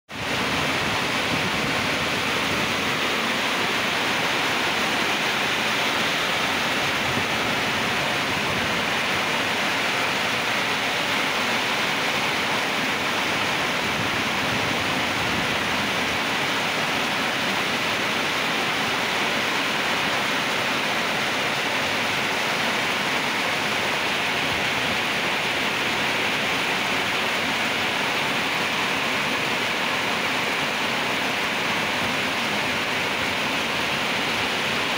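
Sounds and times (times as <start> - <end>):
heavy rain falling: 0.1 - 34.9.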